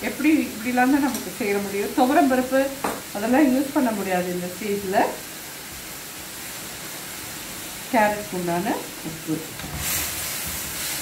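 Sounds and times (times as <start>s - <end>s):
woman talking: 0.0s - 5.2s, 7.9s - 9.5s
food sizzling in a pan: 0.0s - 11.0s.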